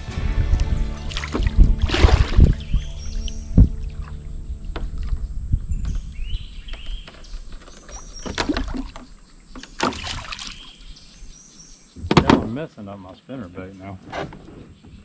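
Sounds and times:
low steady rumble: 0.0 - 8.0
fish splashing at surface: 1.0 - 4.2, 7.1 - 10.8.

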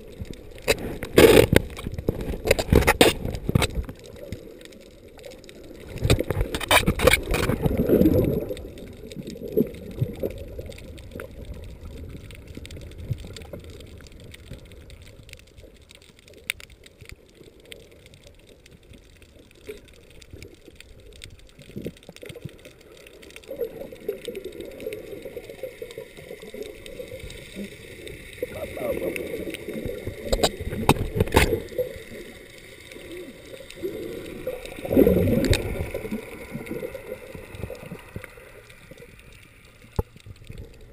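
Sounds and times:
faint clicks: 0.0 - 40.9
underwater sloshing and bubbling: 0.0 - 40.9.

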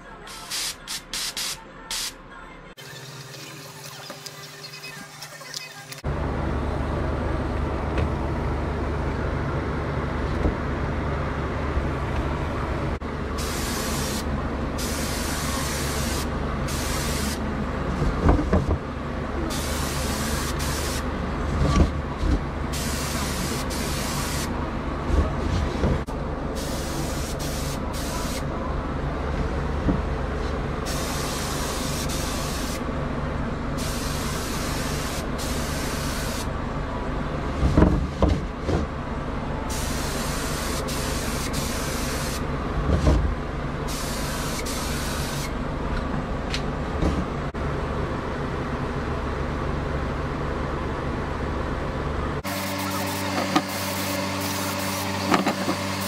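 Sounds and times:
spray gun hissing: 0.3 - 2.2, 13.4 - 14.2, 26.6 - 28.4, 52.5 - 56.0
air compressor humming: 19.4 - 28.5, 33.7 - 36.6, 52.4 - 56.0.

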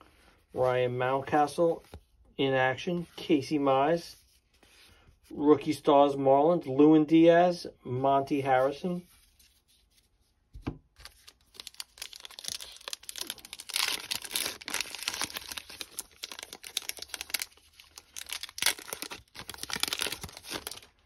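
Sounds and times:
card pack wrapper tearing: 11.0 - 21.0.

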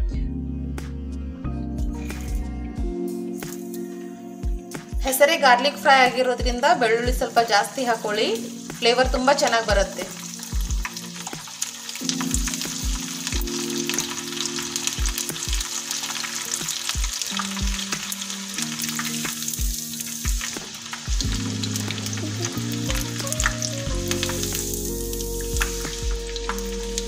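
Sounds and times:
garlic deep-frying in oil: 5.9 - 27.0.

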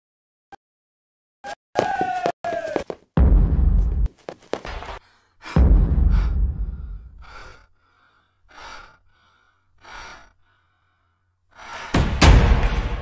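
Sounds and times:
loud deep hit: 3.2 - 4.1, 5.6 - 7.1
woman breathing hard: 5.0 - 12.0.

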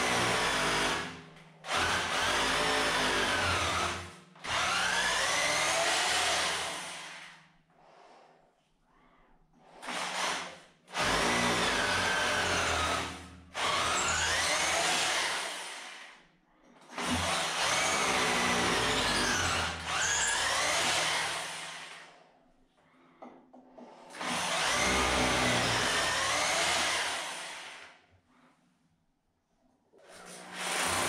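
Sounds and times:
hammer drill boring into concrete: 0.0 - 7.4, 9.8 - 16.2, 16.9 - 22.2, 24.1 - 28.0, 30.4 - 31.0.

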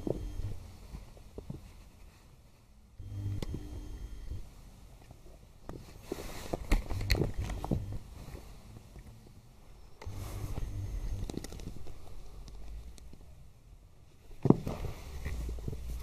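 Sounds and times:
low hum: 0.0 - 1.2, 2.9 - 4.7, 6.0 - 13.8
kittens scuffling on carpet: 0.1 - 2.7, 5.7 - 9.0.

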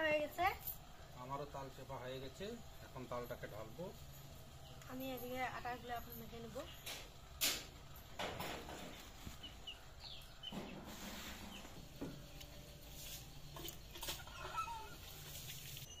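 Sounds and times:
chickens clucking: 8.7 - 15.9.

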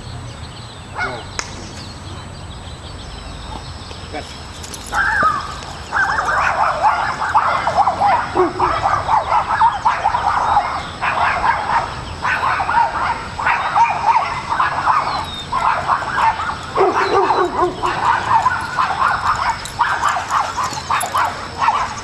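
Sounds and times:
dog whining and yipping: 4.6 - 11.6, 12.4 - 22.0.

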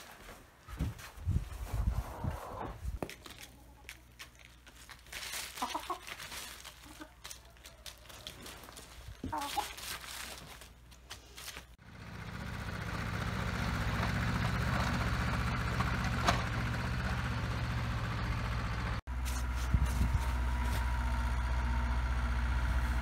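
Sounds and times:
engine running low: 11.8 - 23.0.

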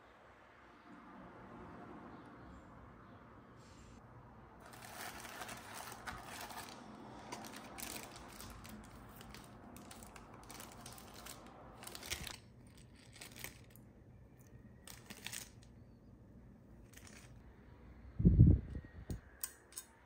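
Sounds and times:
foam and plastic bag rustling: 4.6 - 13.8.

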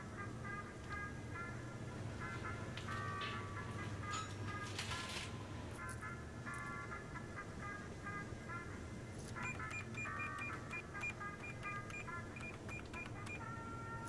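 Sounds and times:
low steady hum: 0.0 - 14.0
cash register beeping: 2.2 - 5.6, 9.4 - 14.0.

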